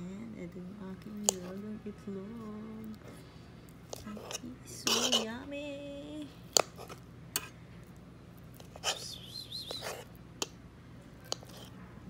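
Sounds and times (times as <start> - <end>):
fork scraping and tapping on plate: 3.9 - 5.3, 11.3 - 11.7.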